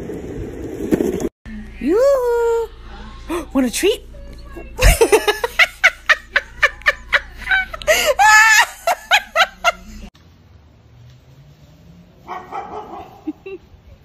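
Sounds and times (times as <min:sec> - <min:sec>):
person laughing hard: 0:04.8 - 0:10.1.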